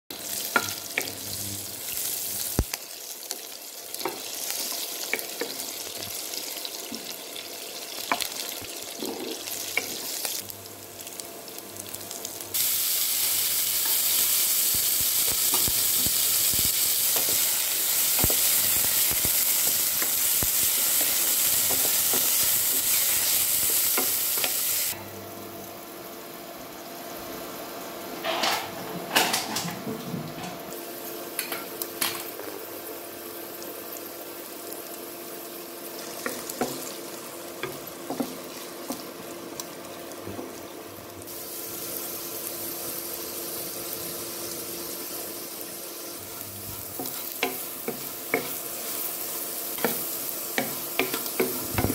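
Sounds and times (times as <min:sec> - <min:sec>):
hot oil sizzling in a pan: 0:00.1 - 0:25.0, 0:30.7 - 0:51.9.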